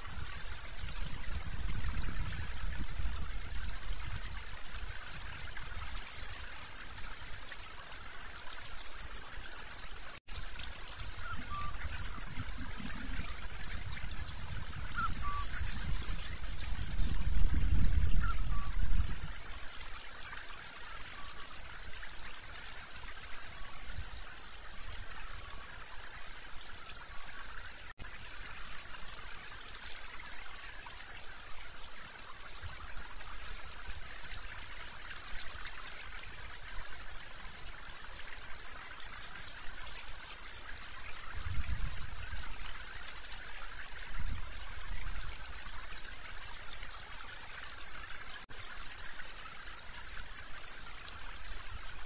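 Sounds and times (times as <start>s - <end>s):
high bird calls: 11.0s - 19.5s.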